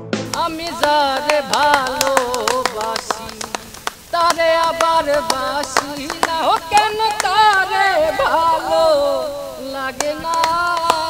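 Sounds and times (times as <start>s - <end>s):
quick beat of sharp taps: 0.2s - 7.7s
person singing: 0.2s - 11.0s.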